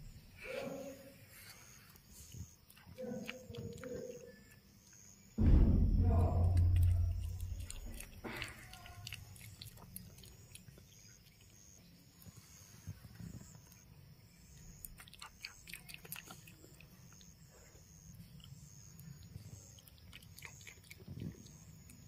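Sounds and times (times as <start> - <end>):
animal chewing wet mouth clicks: 2.4 - 4.7, 6.6 - 11.6, 14.7 - 17.4, 18.4 - 22.0.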